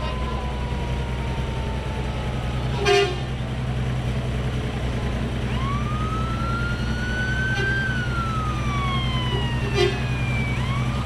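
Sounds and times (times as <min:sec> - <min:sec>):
emergency vehicle siren: 0:00.0 - 0:11.0
low engine rumble: 0:00.0 - 0:11.0
loud horn blast: 0:02.8 - 0:03.4, 0:09.6 - 0:10.2.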